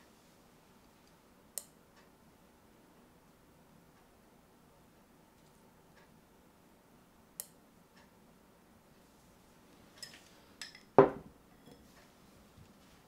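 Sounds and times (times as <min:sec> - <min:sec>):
dishes and utensils clinking: 0:10.0 - 0:12.0
knock on table: 0:11.0 - 0:11.3.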